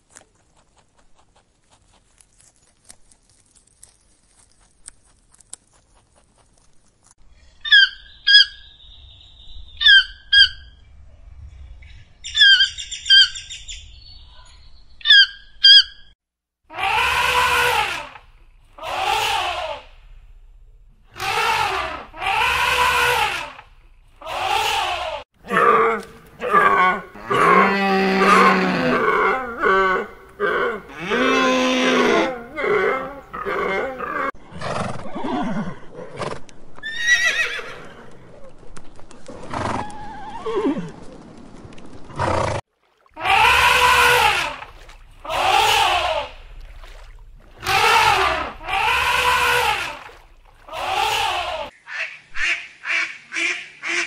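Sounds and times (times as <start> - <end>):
animal calls rising and falling: 16.7 - 19.9, 21.2 - 34.3, 43.2 - 46.4, 47.5 - 51.7.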